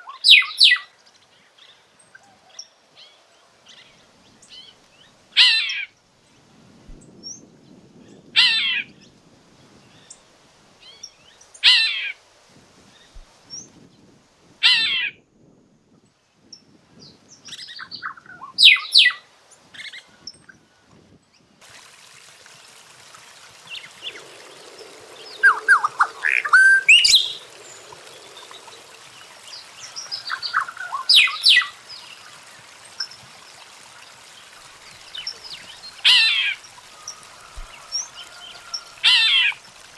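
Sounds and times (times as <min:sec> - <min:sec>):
bird calls: 0:00.0 - 0:00.8, 0:17.8 - 0:19.2, 0:23.6 - 0:33.2
background hiss: 0:16.2 - 0:39.9
bird chatters: 0:23.7 - 0:31.7.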